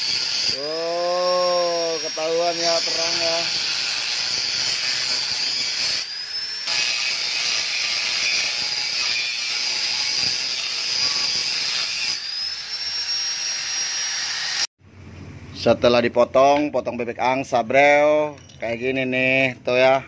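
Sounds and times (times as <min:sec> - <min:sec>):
angle grinder cutting metal: 0:00.0 - 0:14.7.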